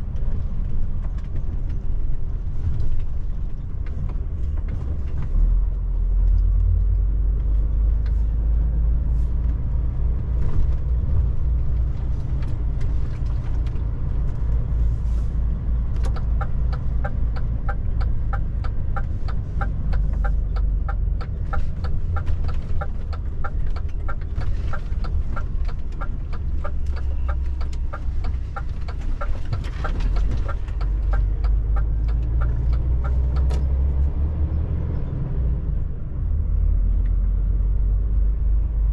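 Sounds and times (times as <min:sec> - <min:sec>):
truck engine and road rumble: 0:00.0 - 0:38.9
turn indicator ticking: 0:15.7 - 0:33.8.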